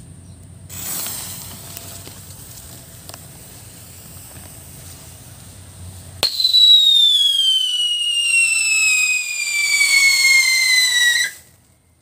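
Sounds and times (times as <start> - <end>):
whistle firework shrieking: 0.7 - 2.1, 6.2 - 11.5.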